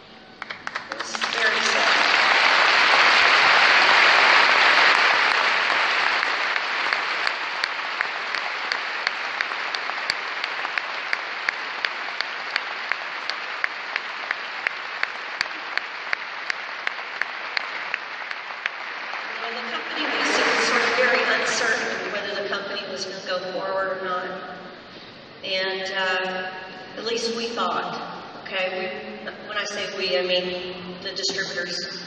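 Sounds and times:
audience applauding: 0:00.4 - 0:22.2
rhythmic clapping in unison: 0:00.4 - 0:22.2.

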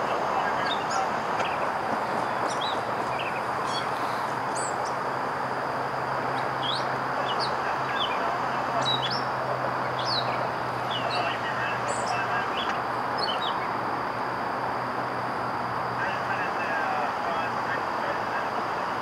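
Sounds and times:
steady rushing noise: 0:00.0 - 0:19.0
small birds chirping: 0:00.3 - 0:05.0, 0:06.2 - 0:13.8.

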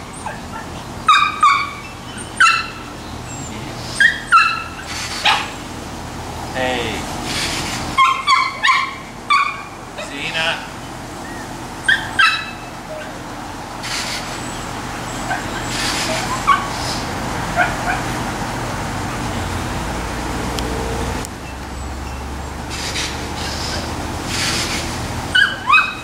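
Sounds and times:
small dogs yipping: 0:00.0 - 0:05.7, 0:07.3 - 0:10.4, 0:11.2 - 0:13.2, 0:13.8 - 0:18.2, 0:22.1 - 0:26.0.

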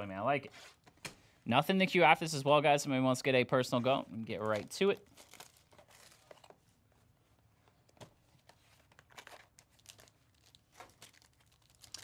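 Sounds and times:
shrink-wrap rustling: 0:04.4 - 0:06.6, 0:07.8 - 0:12.0.

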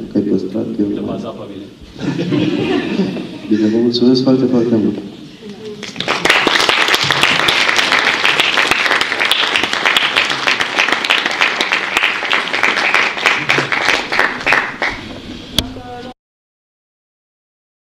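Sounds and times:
audience applauding: 0:05.8 - 0:15.2.

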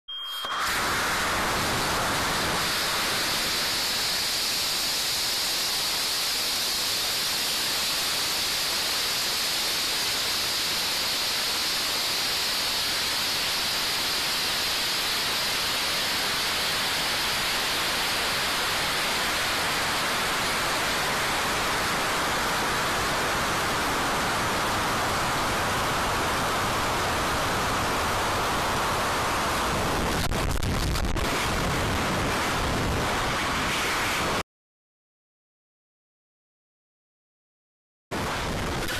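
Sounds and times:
rocket exhaust and air rushing: 0:00.4 - 0:09.2, 0:29.0 - 0:34.4.

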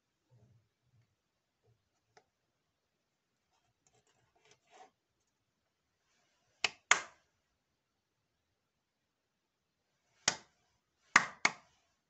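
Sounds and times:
rustling and handling noises: 0:03.4 - 0:06.6.

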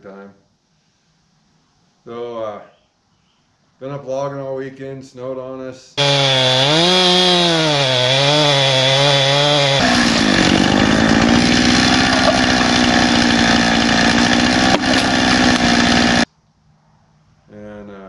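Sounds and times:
chainsaw cutting into tree trunk: 0:06.0 - 0:16.3.

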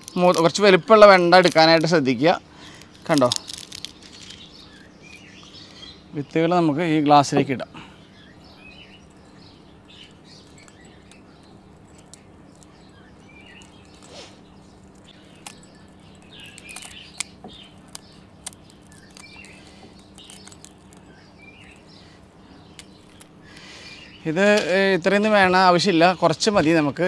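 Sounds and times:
dried pods pulled apart by hand: 0:00.0 - 0:05.8, 0:12.0 - 0:22.0, 0:22.7 - 0:23.8
steady low hum: 0:00.0 - 0:27.0
small bird chirping: 0:02.6 - 0:26.6.

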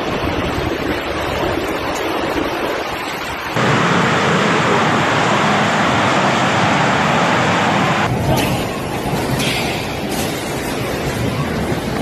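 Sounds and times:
storm wind with rain rushing: 0:00.0 - 0:12.0.

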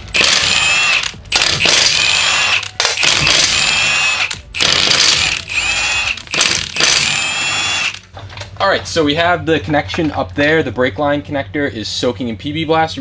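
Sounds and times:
impact wrench whining: 0:00.0 - 0:08.1.

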